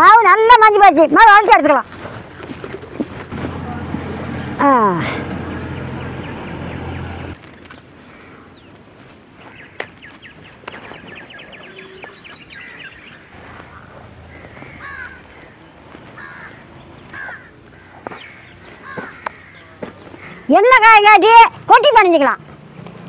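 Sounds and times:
birds calling: 0:01.8 - 0:21.0
crows cawing: 0:08.0 - 0:08.6, 0:12.0 - 0:20.7.

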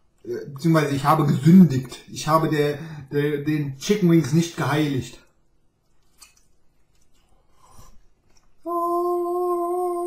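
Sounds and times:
man singing a long note: 0:08.7 - 0:10.0.

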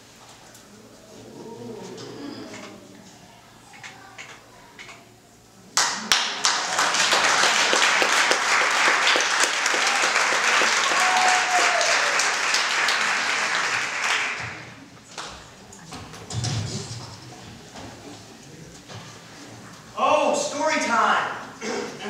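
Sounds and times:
audience applauding: 0:05.8 - 0:15.6.

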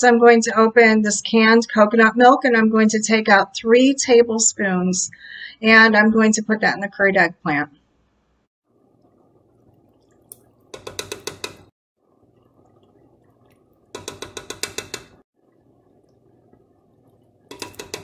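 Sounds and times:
faint steady hiss: 0:07.8 - 0:18.0
spoon tapping against a pan: 0:10.3 - 0:11.7, 0:13.4 - 0:15.2, 0:17.5 - 0:18.0.

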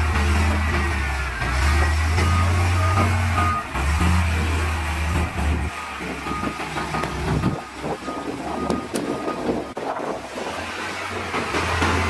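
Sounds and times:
heavy machinery diesel engines: 0:00.0 - 0:12.0
backup alarm beeping: 0:06.3 - 0:09.8.

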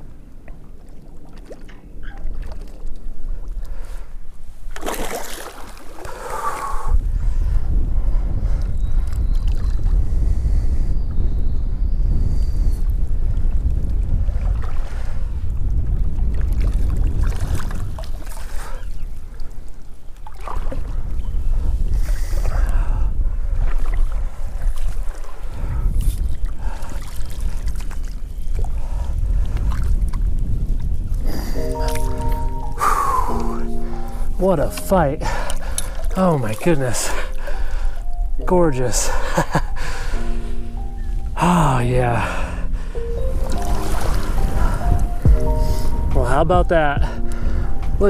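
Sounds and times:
water lapping and splashing: 0:00.0 - 0:07.0, 0:09.0 - 0:10.0, 0:14.0 - 0:40.9, 0:42.2 - 0:46.0
wind noise on microphone: 0:06.0 - 0:48.0
lapping water: 0:31.1 - 0:38.2
steady low rumble: 0:37.3 - 0:48.0.

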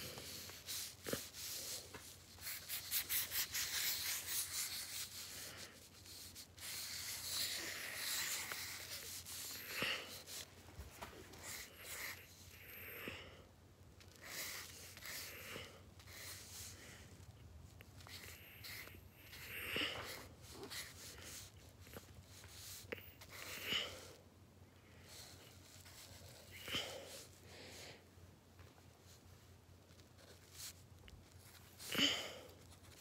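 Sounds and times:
scribbling on paper: 0:00.0 - 0:10.5, 0:18.0 - 0:23.6.

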